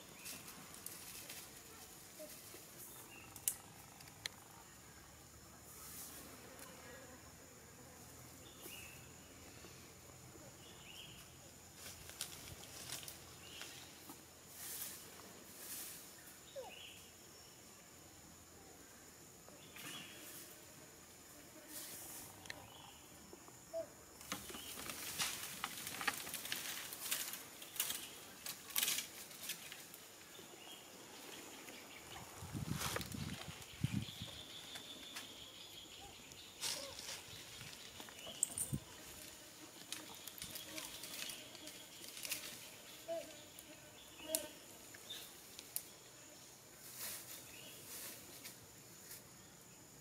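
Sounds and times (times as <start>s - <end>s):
faint insect drone: 0.0s - 50.0s
light crackles: 11.8s - 13.8s, 24.2s - 30.3s, 36.3s - 42.7s, 44.3s - 45.9s.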